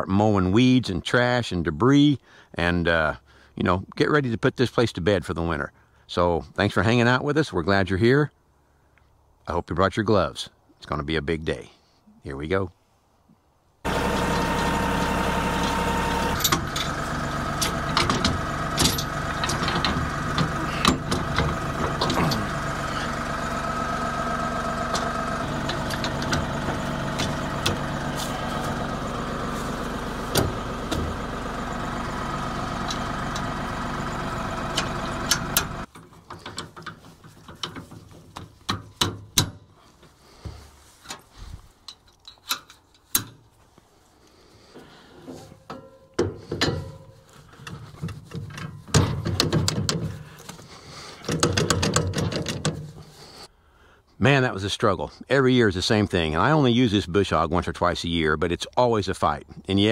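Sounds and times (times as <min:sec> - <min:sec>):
tractor diesel engine idling: 0:13.8 - 0:39.2, 0:44.2 - 0:53.5
metal clanks and rattles: 0:13.9 - 0:41.2, 0:45.2 - 0:53.2
metallic knocks and clicks: 0:17.6 - 0:22.6, 0:48.4 - 0:50.2, 0:51.2 - 0:53.0.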